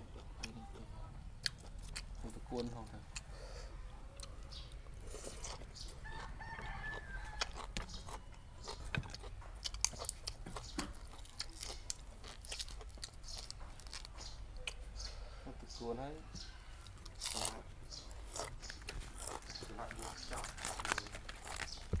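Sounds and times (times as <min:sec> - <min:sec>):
rooster crowing: 0:06.0 - 0:07.8.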